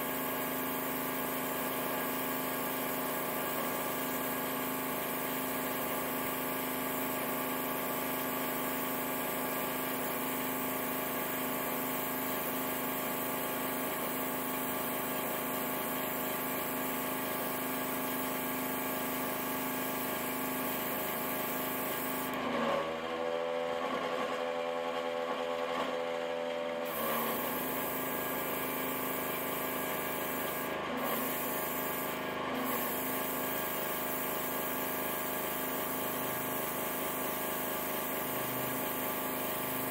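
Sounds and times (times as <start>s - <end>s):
small compressor humming: 0.0s - 22.5s, 26.8s - 39.9s
airbrush spraying hiss: 20.6s - 22.3s, 26.9s - 39.9s.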